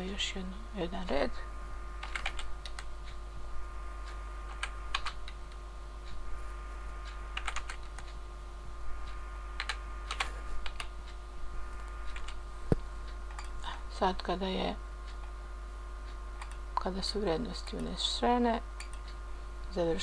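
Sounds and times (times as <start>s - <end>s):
steady electrical hum: 0.0s - 20.0s
computer keyboard typing: 2.0s - 2.9s, 4.5s - 5.6s, 7.3s - 8.2s, 9.6s - 10.9s, 12.0s - 12.4s, 13.3s - 13.7s.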